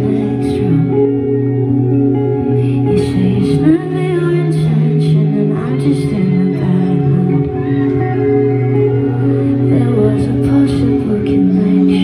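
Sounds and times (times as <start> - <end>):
electric guitar: 0.0 - 12.0
woman singing: 0.0 - 12.0.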